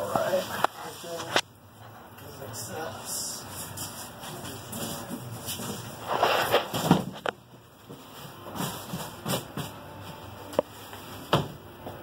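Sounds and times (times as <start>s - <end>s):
styrofoam rubbing and scraping: 4.9s - 7.0s.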